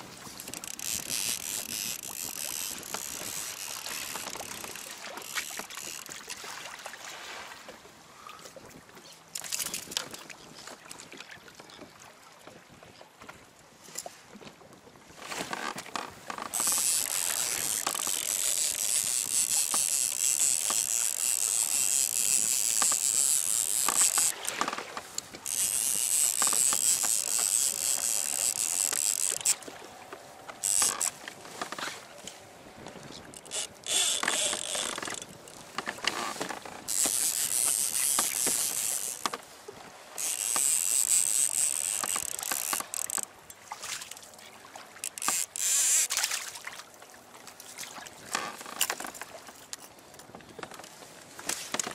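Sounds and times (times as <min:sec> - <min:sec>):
fishing reel gears whirring: 0:00.3 - 0:06.3, 0:15.5 - 0:29.7, 0:30.5 - 0:31.2, 0:33.2 - 0:39.4, 0:40.2 - 0:44.3, 0:45.0 - 0:46.2
small clicks and knocks: 0:00.4 - 0:06.3, 0:09.3 - 0:10.2, 0:15.4 - 0:39.4, 0:40.2 - 0:44.3, 0:45.0 - 0:46.2, 0:48.3 - 0:51.9.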